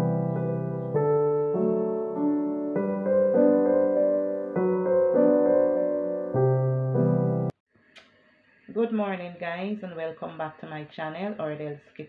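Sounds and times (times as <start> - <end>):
piano chords: 0.0 - 7.6.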